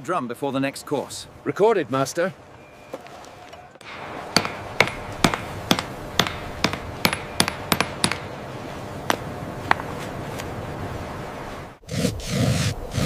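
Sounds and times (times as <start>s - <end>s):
mallet striking chisel into stone: 4.4s - 8.3s.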